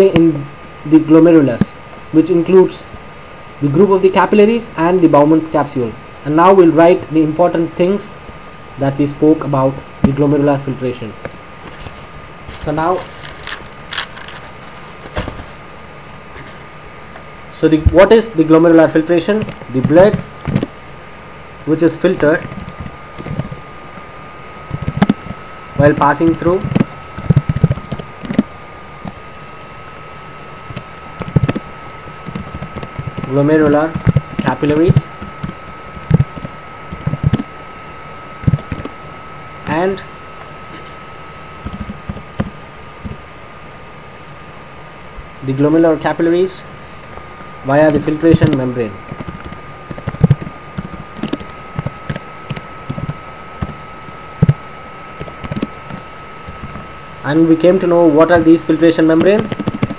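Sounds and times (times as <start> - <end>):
faint electrical whine: 0.0 - 59.9
keyboard keys clicking: 48.4 - 53.7, 59.2 - 59.9.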